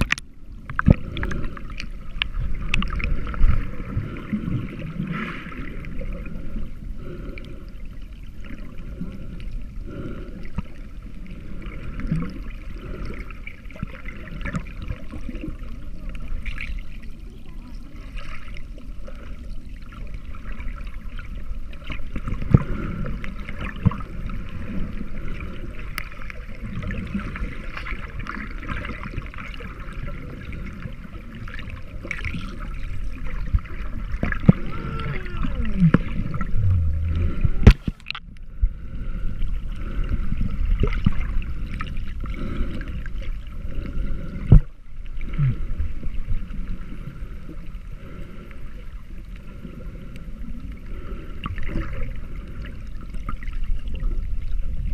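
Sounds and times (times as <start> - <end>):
underwater water sloshing: 0.0 - 54.9
swimmers kicking with fins: 21.8 - 38.4.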